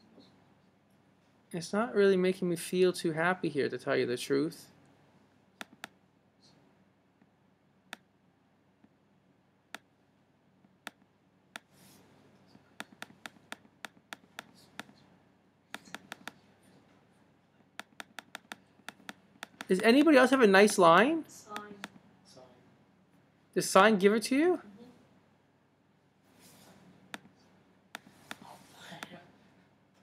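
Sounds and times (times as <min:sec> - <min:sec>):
computer mouse clicks: 0:05.6 - 0:06.0, 0:12.8 - 0:15.0, 0:15.7 - 0:16.4, 0:17.8 - 0:20.1, 0:27.9 - 0:28.4.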